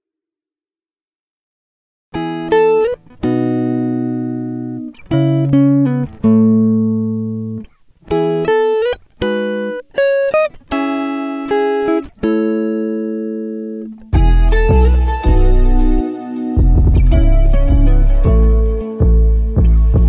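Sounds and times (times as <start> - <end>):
plucked guitar notes and chords: 2.1 - 20.0
deep bass music: 14.2 - 16.0, 16.6 - 20.0.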